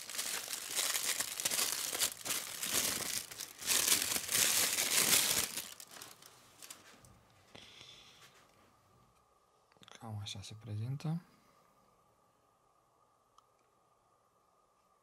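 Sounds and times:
plastic bag crinkling: 0.0 - 7.0.

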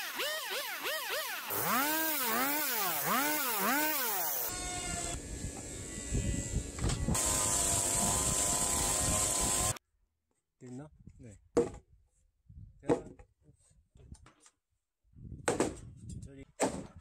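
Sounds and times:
chainsaw revving and cutting: 0.0 - 5.1, 7.1 - 9.8.

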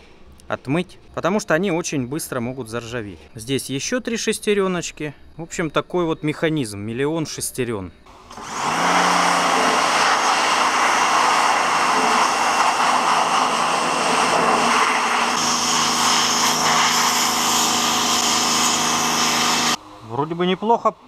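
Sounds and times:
pressure washer jet hissing: 8.1 - 19.8.

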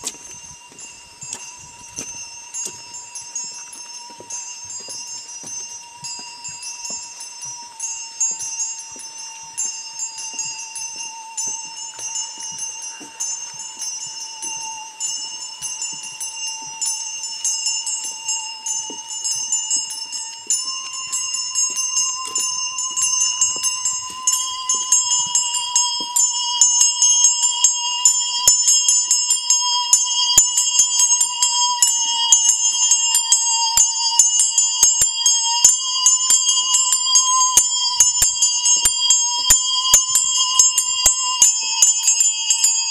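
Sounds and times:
handbells tinkling: 0.0 - 42.9
musical saw wavering note: 14.4 - 29.2.

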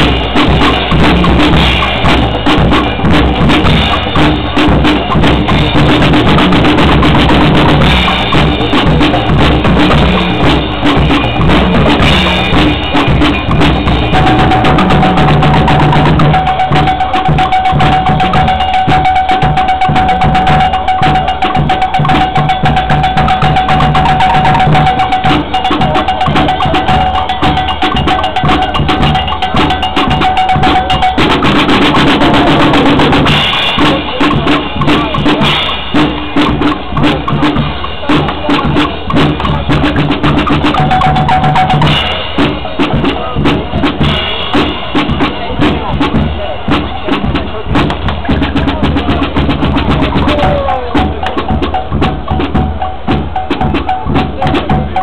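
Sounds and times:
steady high tone: 0.0 - 35.9, 38.5 - 42.4
marching drums beating: 0.0 - 55.0.

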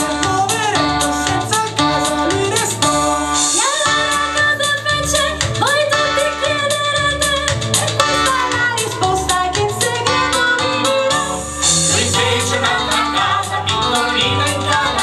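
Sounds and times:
vocal group singing in harmony: 0.0 - 4.8, 9.4 - 15.0
woman singing lead: 0.0 - 15.0
steady beat: 7.3 - 15.0.

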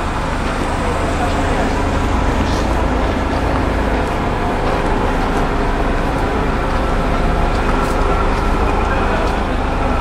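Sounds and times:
engine droning: 0.0 - 10.0.

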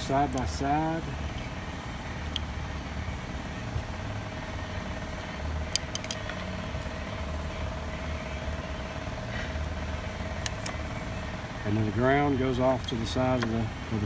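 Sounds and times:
low background hum: 0.0 - 14.0
small metallic clicks: 5.7 - 6.9.

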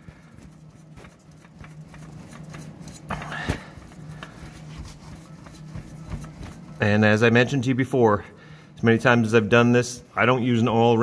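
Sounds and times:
oil filter rubbing and ticking: 0.2 - 7.2.

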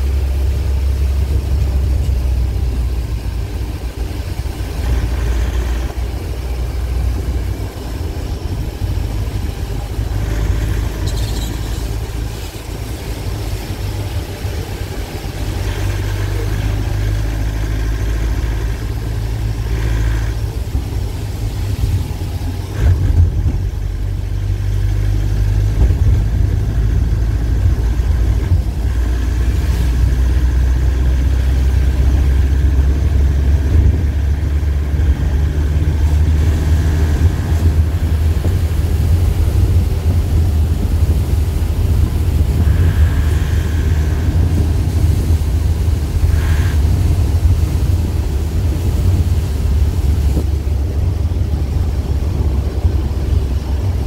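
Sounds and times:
vehicle engine and tyre drone: 0.0 - 54.0.

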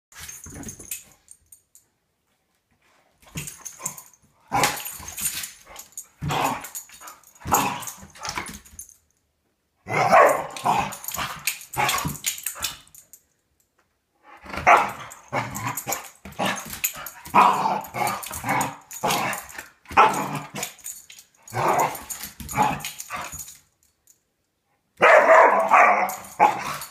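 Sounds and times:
dog growling and barking: 3.4 - 8.4, 9.8 - 12.6, 14.3 - 23.5, 25.0 - 26.9.

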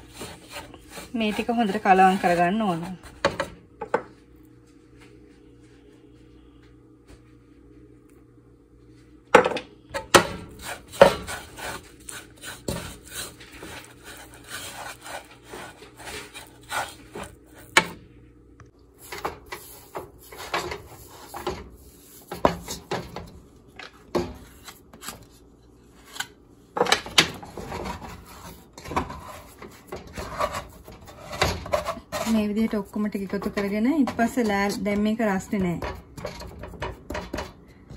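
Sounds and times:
plastic scraper scraping dough: 0.0 - 3.0, 10.5 - 17.8, 27.5 - 37.4
wooden spatula scraping metal pan: 0.0 - 3.5, 10.5 - 17.9, 19.0 - 23.1, 27.4 - 37.5.

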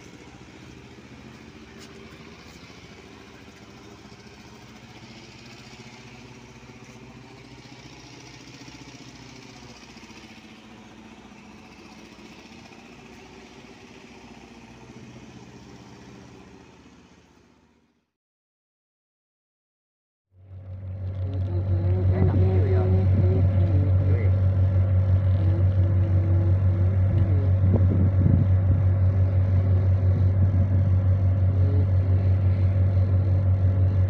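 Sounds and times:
outdoor background noise: 0.0 - 18.0
vehicle engine idling: 0.0 - 18.1, 20.4 - 34.0.

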